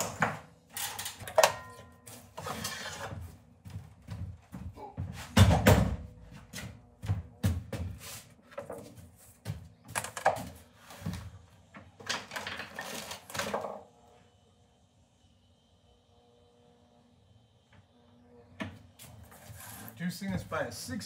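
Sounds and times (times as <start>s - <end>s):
wood sliding on metal table: 2.4s - 3.1s.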